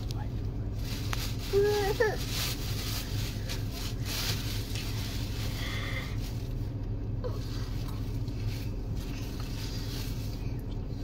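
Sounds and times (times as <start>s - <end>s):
car hum and rumble from inside: 0.0s - 11.0s.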